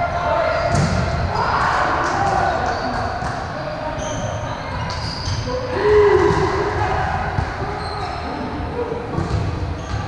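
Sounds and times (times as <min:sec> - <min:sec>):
sneakers squeaking on hardwood: 0:09.2 - 0:10.0.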